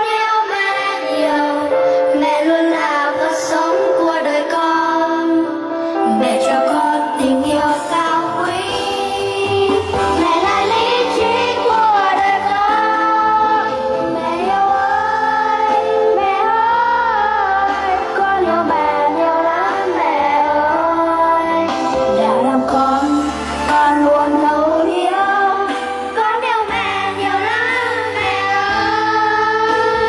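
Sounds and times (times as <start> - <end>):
woman singing: 0.0 - 30.0
backing music track: 0.1 - 30.0
children singing: 6.3 - 30.0.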